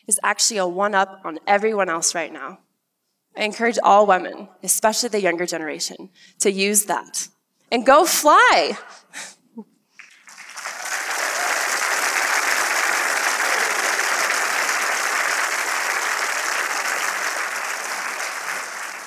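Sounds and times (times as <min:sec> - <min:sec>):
audience applauding: 0:10.0 - 0:19.0.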